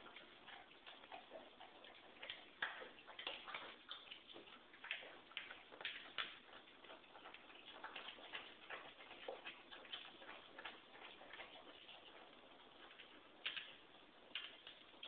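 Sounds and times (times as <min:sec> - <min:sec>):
pets crunching dry kibble: 0:00.0 - 0:15.0.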